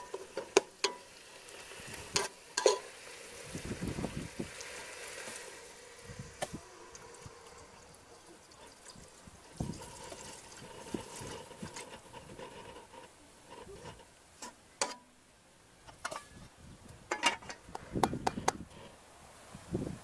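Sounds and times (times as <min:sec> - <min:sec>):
water pouring into a pot: 0:00.0 - 0:14.0.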